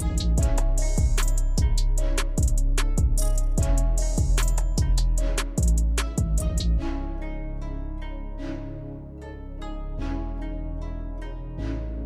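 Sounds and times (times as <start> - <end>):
music with drums and bass: 0.0 - 6.8.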